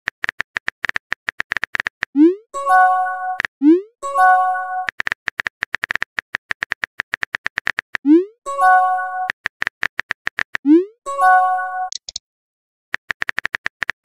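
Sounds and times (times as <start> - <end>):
keyboard typing clicks: 0.1 - 2.2, 4.8 - 8.2, 9.0 - 10.7, 11.9 - 12.2, 13.0 - 14.0.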